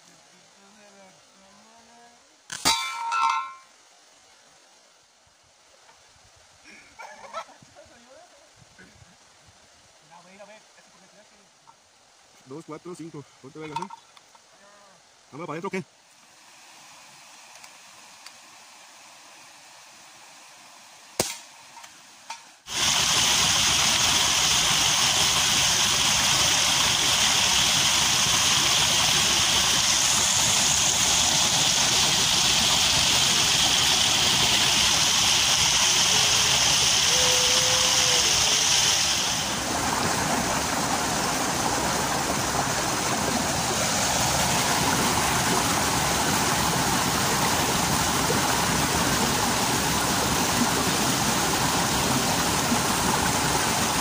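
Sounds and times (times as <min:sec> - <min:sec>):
waterfall pouring over rocks: 0:05.7 - 0:54.0
sharp crack: 0:21.2 - 0:21.9.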